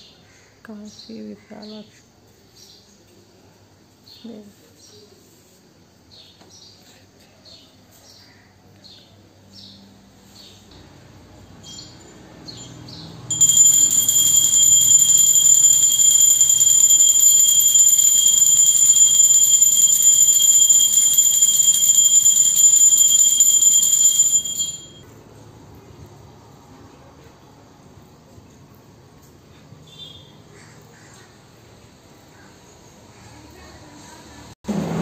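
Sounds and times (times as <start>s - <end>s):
temple bell ringing rapidly: 11.6s - 25.0s.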